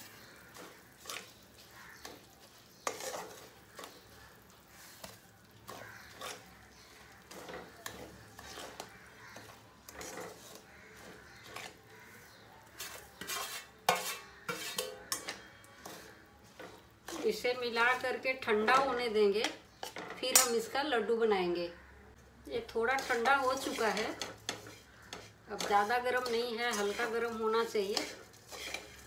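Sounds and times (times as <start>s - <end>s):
spatula scraping dry mix in pan: 0.0s - 20.5s, 22.8s - 29.0s.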